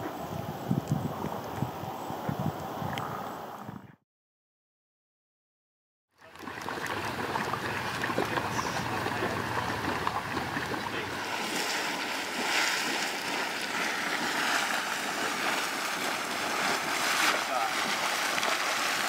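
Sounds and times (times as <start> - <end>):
geyser boiling and splashing: 6.2 - 19.0.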